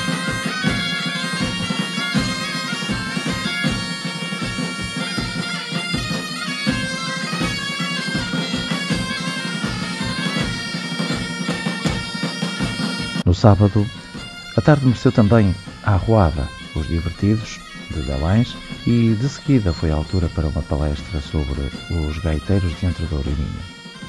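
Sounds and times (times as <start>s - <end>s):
snare drum beat: 0.0s - 13.2s
bagpipes playing over drone: 0.0s - 24.0s.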